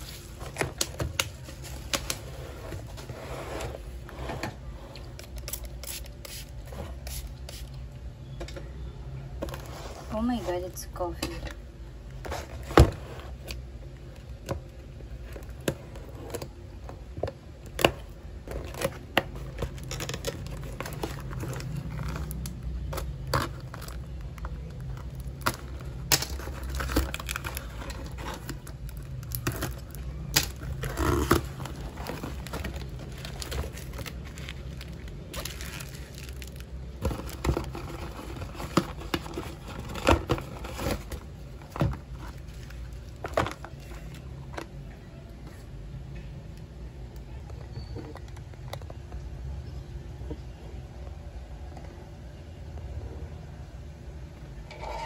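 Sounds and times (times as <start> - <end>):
bubble wrap crinkling: 0.0 - 3.2, 17.7 - 44.4
cardboard tearing and rustling: 24.7 - 44.1.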